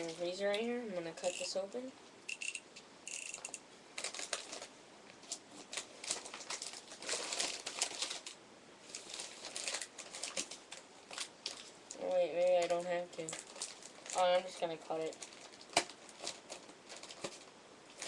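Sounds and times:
stiff paper crinkling: 0:04.0 - 0:18.0.

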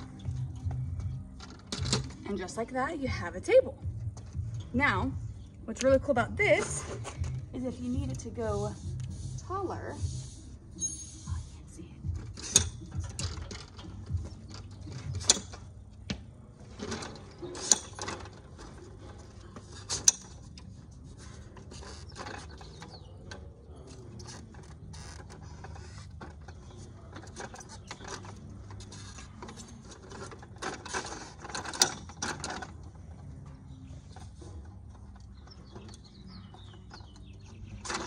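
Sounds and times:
metal clicks and rattles of table legs: 0:00.2 - 0:02.2, 0:12.2 - 0:15.7, 0:21.6 - 0:33.2.

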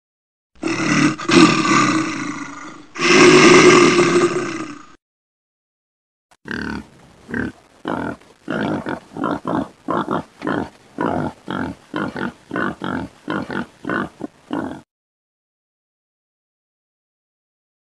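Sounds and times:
cartoon animal grunts: 0:00.6 - 0:05.0, 0:06.5 - 0:14.9.

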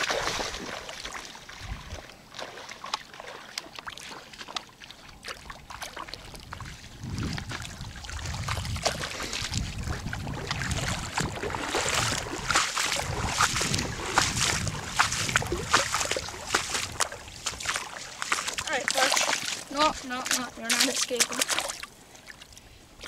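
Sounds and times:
fish splashing in water: 0:00.0 - 0:06.7, 0:07.4 - 0:22.5
wind rumble on microphone: 0:01.5 - 0:02.1, 0:05.5 - 0:18.7.

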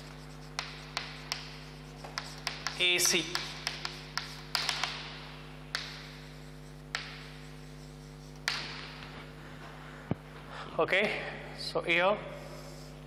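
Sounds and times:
chalk tapping and scratching: 0:00.0 - 0:09.1
steady low hum: 0:00.0 - 0:13.0.

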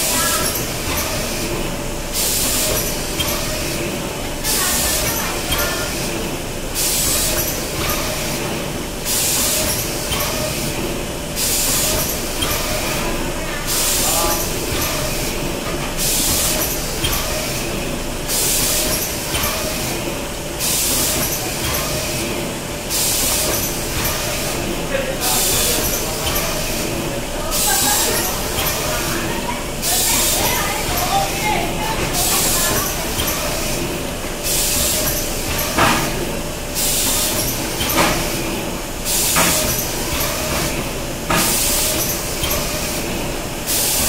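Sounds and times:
machine hum and clatter: 0:00.0 - 0:44.0.

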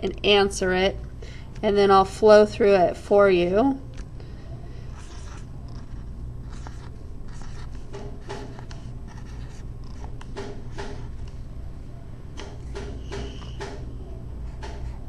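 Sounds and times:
steady low hum: 0:00.0 - 0:15.0
marker writing on whiteboard: 0:05.0 - 0:11.1, 0:14.5 - 0:15.0.

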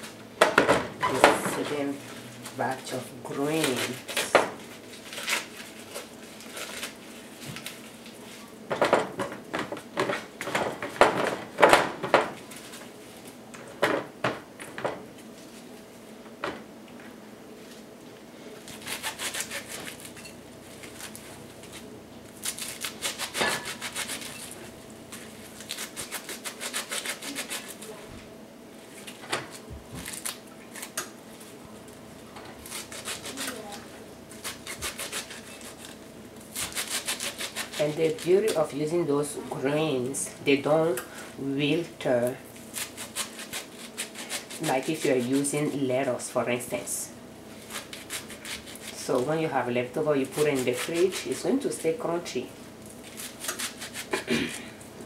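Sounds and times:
leafy greens rustling and tearing: 0:01.1 - 0:08.6, 0:12.4 - 0:13.4, 0:17.6 - 0:28.0, 0:28.8 - 0:38.9, 0:42.2 - 0:45.8, 0:47.5 - 0:54.8.

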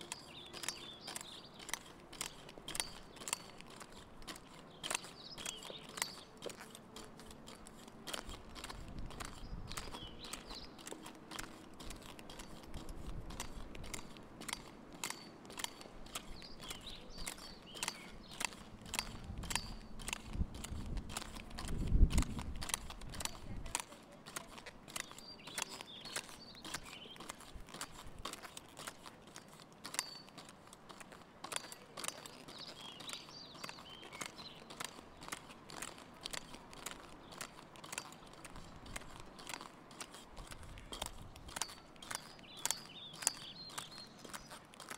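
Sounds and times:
pogo stick bouncing on asphalt: 0:00.0 - 0:44.9.

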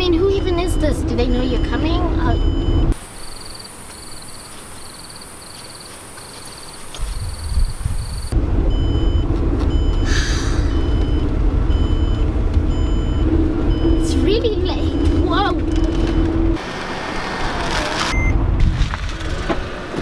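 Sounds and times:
car engine and road rumble: 0:00.0 - 0:20.0
faint high beeps: 0:00.4 - 0:04.4
night insects droning and chirping: 0:03.0 - 0:08.4.

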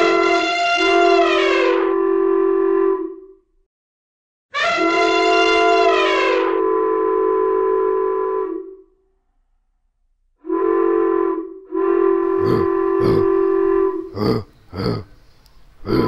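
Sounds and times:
steam locomotive whistle blasts: 0:00.0 - 0:03.4, 0:04.5 - 0:09.0, 0:10.4 - 0:14.1.

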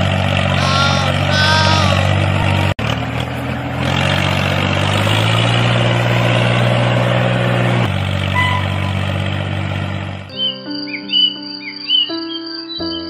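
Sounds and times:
tractor engine running: 0:00.0 - 0:10.3.

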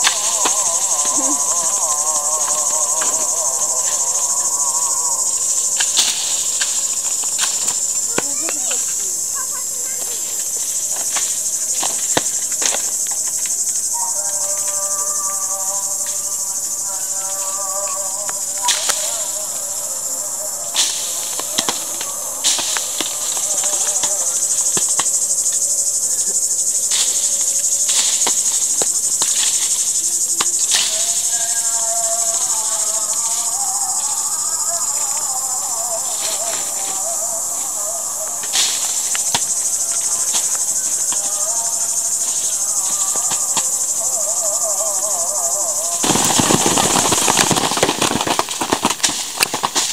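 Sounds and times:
faint wavering pitched sound: 0:00.0 - 0:07.4
high-pitched insect chorus: 0:00.0 - 0:49.9.

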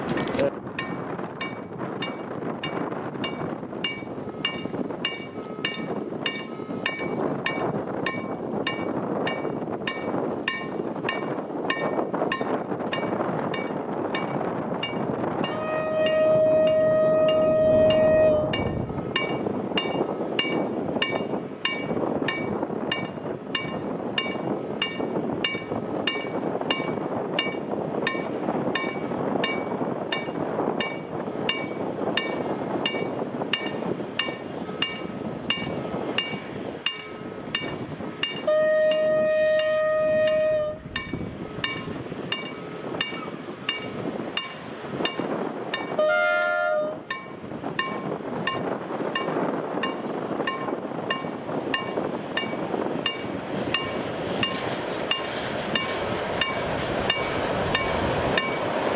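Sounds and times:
freight train rumbling: 0:00.0 - 0:58.9
locomotive horn blasts: 0:15.5 - 0:19.0, 0:38.4 - 0:41.0, 0:46.0 - 0:47.1.

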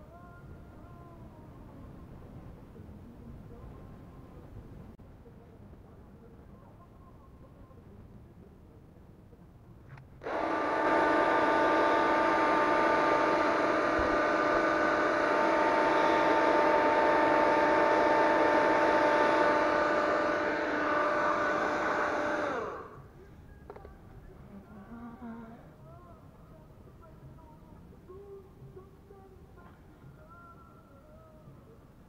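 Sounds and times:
hair dryer running: 0:10.2 - 0:23.0.

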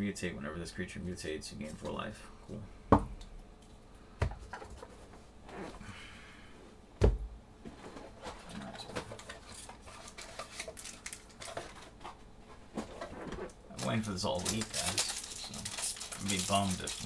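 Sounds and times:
cards clicking and rustling: 0:08.4 - 0:12.2, 0:13.8 - 0:17.0.

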